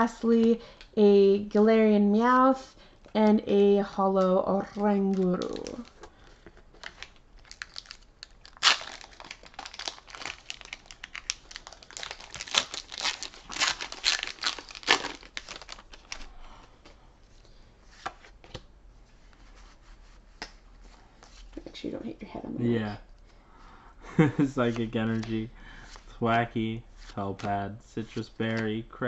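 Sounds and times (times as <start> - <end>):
foil wrapper crinkling and tearing: 5.1 - 6.0, 6.8 - 16.3.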